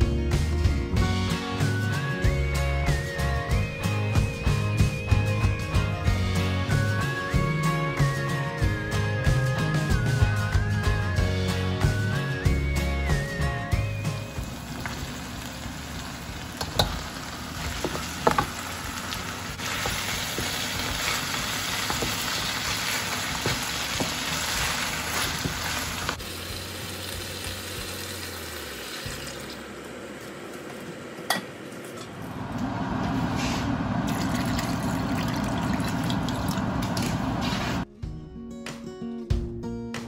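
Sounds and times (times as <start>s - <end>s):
onions and crabs sizzling in a wok: 14.2s - 30.0s
wooden spatula knocking on a pan: 17.8s - 18.6s
liquid poured into a wok: 34.1s - 37.1s.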